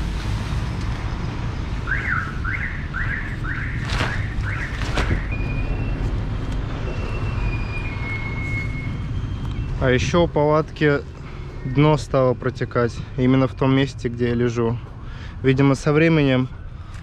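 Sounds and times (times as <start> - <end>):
vehicle alarm siren: 1.5 - 9.8
tent nylon rustling: 3.7 - 5.6.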